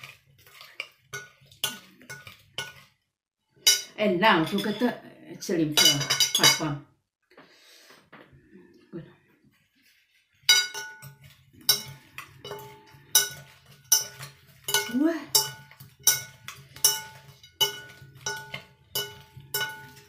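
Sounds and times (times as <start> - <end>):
utensils clinking glass bowl: 0.0 - 2.9, 3.6 - 5.0, 5.7 - 6.8, 10.4 - 20.0.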